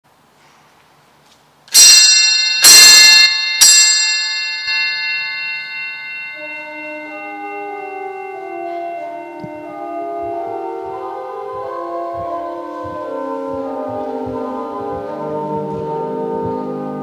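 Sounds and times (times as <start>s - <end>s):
loud church bell strikes: 1.7s - 16.6s
lower-pitched bells ringing: 1.7s - 17.0s.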